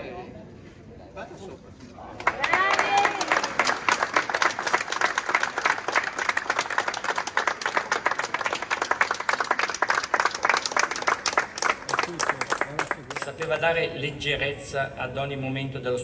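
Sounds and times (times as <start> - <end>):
people applauding: 2.1 - 13.7.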